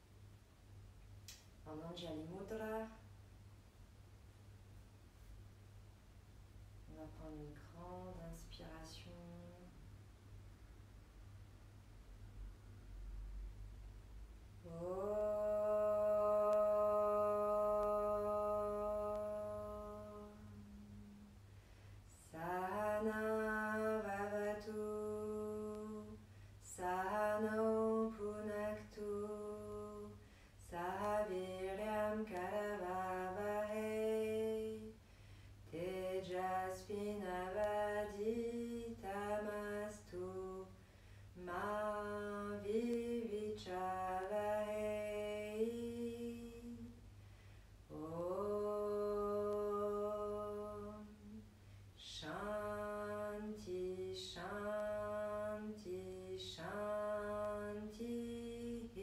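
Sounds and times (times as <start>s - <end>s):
woman chanting: 1.6s - 3.1s, 6.9s - 9.9s, 14.6s - 21.4s, 22.1s - 35.0s, 35.6s - 47.0s, 47.9s - 59.0s.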